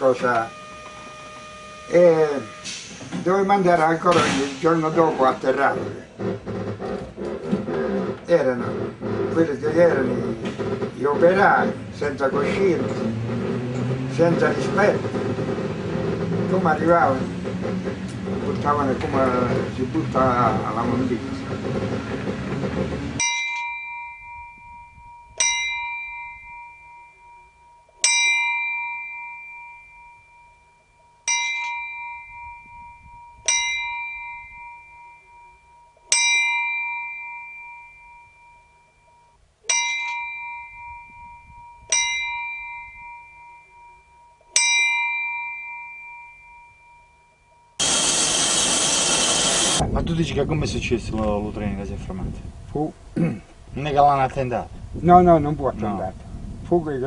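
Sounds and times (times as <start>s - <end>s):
bell tolling slowly: 0.0s - 4.0s, 23.2s - 49.6s
loud steady rushing noise: 3.5s - 23.2s, 47.8s - 51.1s.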